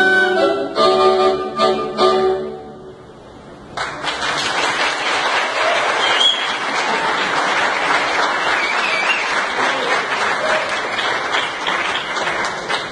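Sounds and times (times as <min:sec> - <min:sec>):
saxophone ensemble chord: 0:00.0 - 0:03.6
audience applauding: 0:03.8 - 0:12.9.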